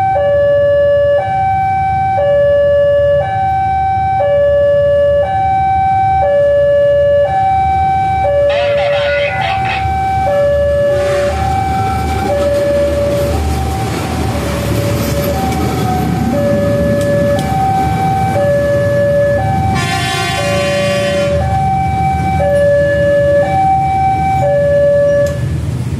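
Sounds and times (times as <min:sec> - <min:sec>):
level crossing two-note alarm: 0:00.0 - 0:13.7
track machine rumbling over rails: 0:07.4 - 0:25.9.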